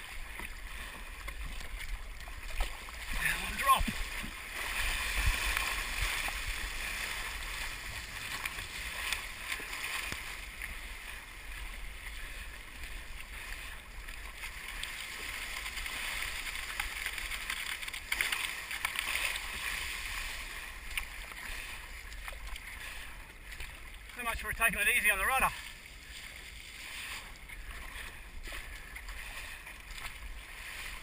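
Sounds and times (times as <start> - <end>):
wind rumbling on microphone: 0.0 - 17.7
water rushing along boat hull: 0.0 - 31.0.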